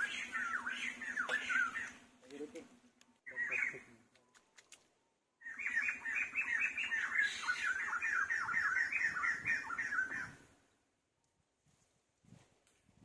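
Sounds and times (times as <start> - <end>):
animal squawky calls: 0.0 - 2.0.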